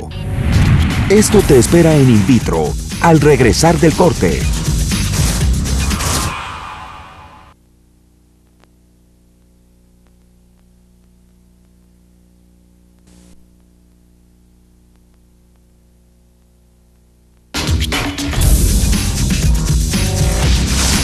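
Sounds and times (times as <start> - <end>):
loud music: 0.0 - 7.5, 17.6 - 21.0
low electrical hum: 7.5 - 17.6
faint ticks: 8.4 - 12.0, 14.9 - 15.8.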